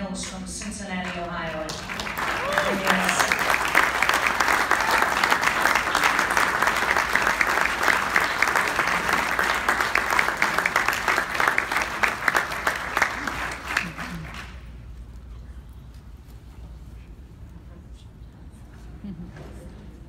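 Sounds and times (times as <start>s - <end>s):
audience applause: 1.7s - 14.8s.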